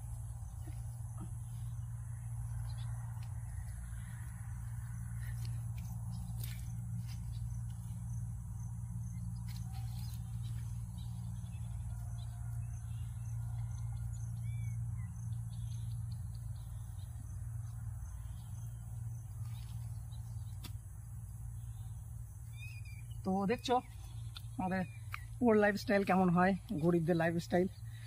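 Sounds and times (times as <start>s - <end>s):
steady low hum: 0.0s - 28.0s
faint bird chirps: 21.6s - 25.4s.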